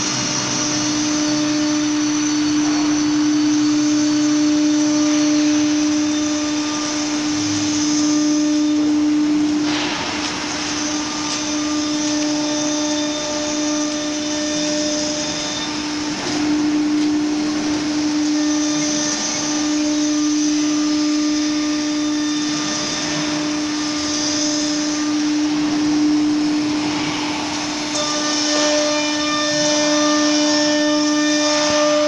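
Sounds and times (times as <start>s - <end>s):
cnc router whining: 0.0s - 32.0s.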